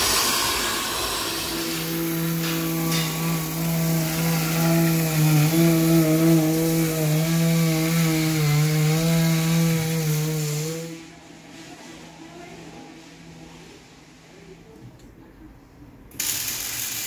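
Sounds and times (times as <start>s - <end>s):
vacuum cleaner running: 0.0s - 11.0s.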